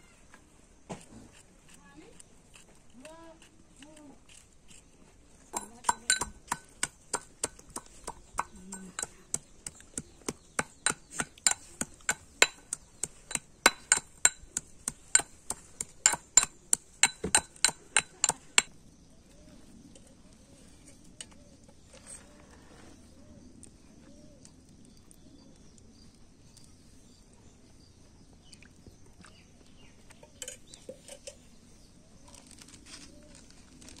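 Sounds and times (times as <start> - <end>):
metal pestle pounding in mortar: 5.6 - 18.7.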